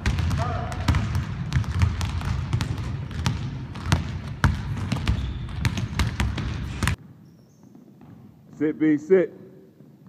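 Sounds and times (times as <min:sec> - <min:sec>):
basketball bouncing on wooden floor: 0:00.0 - 0:08.5.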